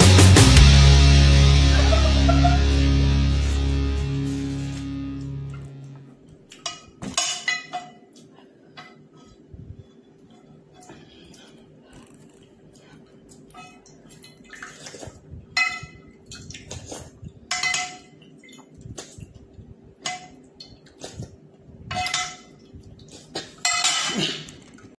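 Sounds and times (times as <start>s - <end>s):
eating noodle soup: 10.8s - 15.3s, 16.3s - 17.4s.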